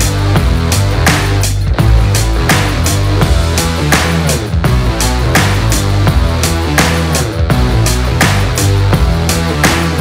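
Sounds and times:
loud background music: 0.0s - 10.0s
steady drum beat: 0.0s - 10.0s.

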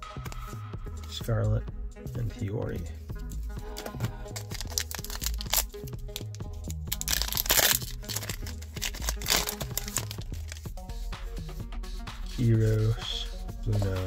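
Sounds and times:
background music: 0.0s - 14.0s
foil wrapper crinkling and tearing: 3.7s - 10.7s.

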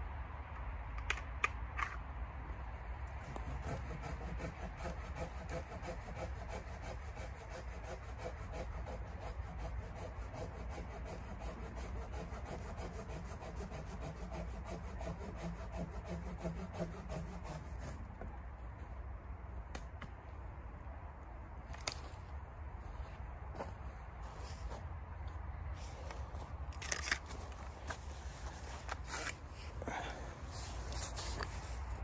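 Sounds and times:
hand saw cutting branch: 3.1s - 18.2s.

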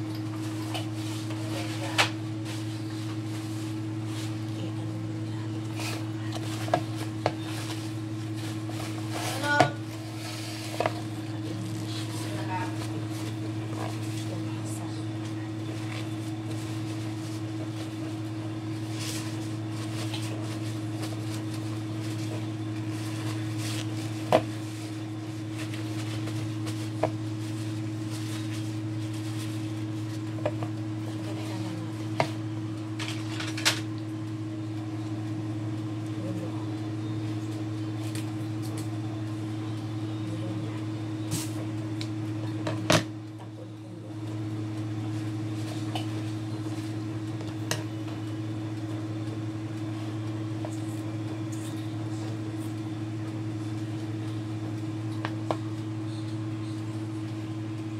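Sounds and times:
steady low hum: 0.0s - 57.9s
paper towels rustling: 0.4s - 5.0s, 5.6s - 32.2s, 45.0s - 47.1s.

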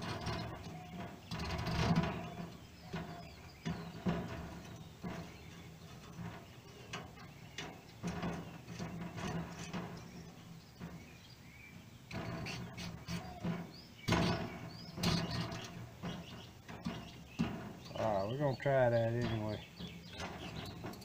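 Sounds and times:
metal parts clicking and knocking: 12.1s - 21.0s.

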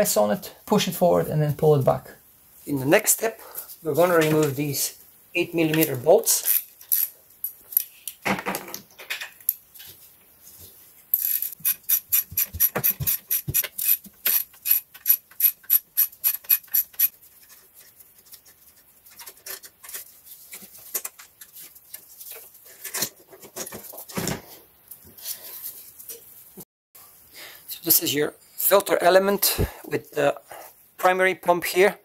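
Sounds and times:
ratchet wrench clicking: 6.5s - 7.1s, 11.2s - 17.1s.

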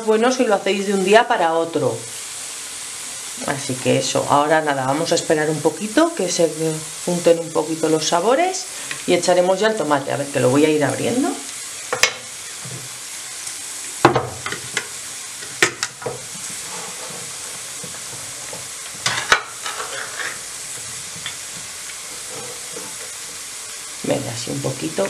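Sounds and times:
food sizzling in oil: 0.0s - 25.0s.

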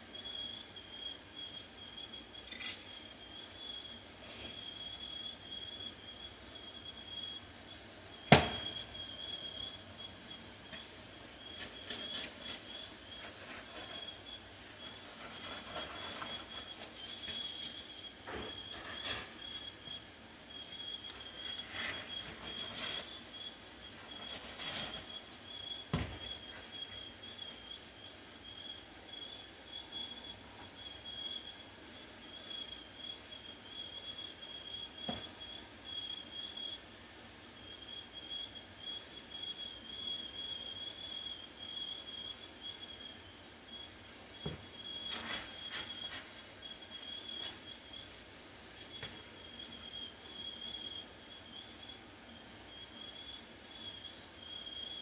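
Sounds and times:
sharp knock: 8.3s - 8.7s.

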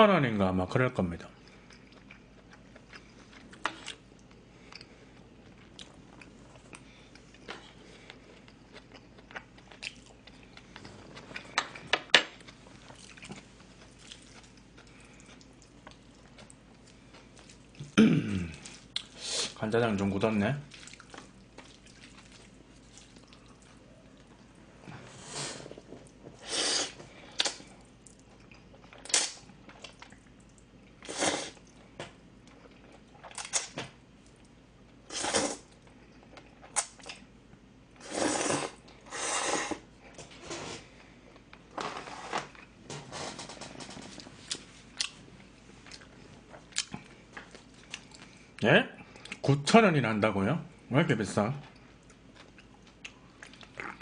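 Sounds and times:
quiet chewing: 1.4s - 19.2s, 20.7s - 35.0s, 44.1s - 49.5s, 51.6s - 54.0s
person slurping noodles: 26.4s - 27.0s, 31.0s - 31.6s, 35.1s - 35.6s, 38.0s - 39.9s.

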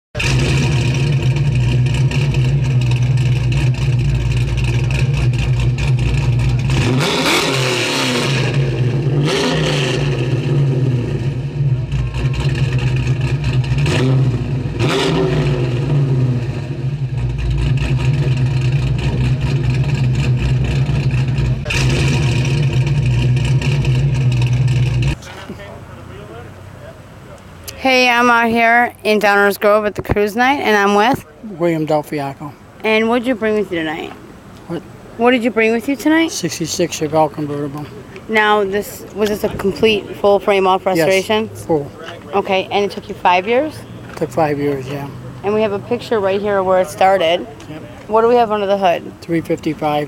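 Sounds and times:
car engine revving: 0.1s - 29.4s, 32.9s - 50.0s.

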